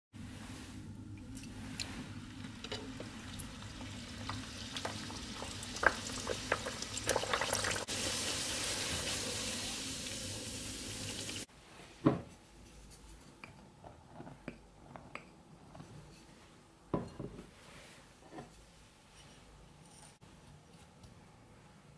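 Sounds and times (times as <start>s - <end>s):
dough frying in hot oil: 0.4s - 11.5s.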